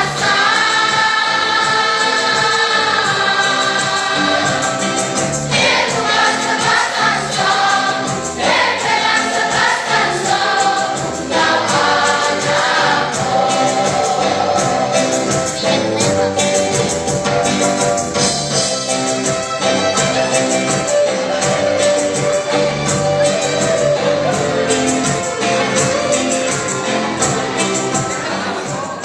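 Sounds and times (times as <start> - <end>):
choir singing: 0.0 - 15.5.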